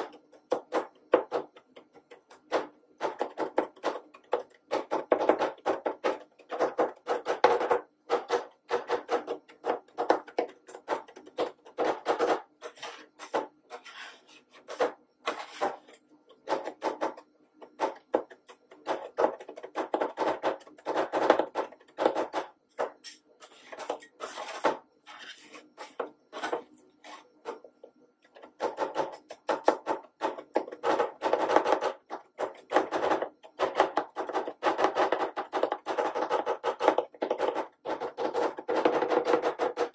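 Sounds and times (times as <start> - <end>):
steel spatulas chopping and scraping: 11.8 - 17.2.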